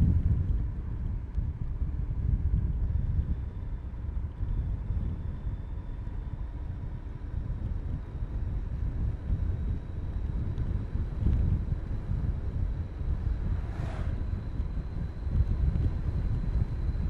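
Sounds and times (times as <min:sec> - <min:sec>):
motorbike engine rumble: 0:00.0 - 0:17.0
thin steady whine: 0:00.0 - 0:17.0
wind buffeting microphone: 0:00.0 - 0:17.0.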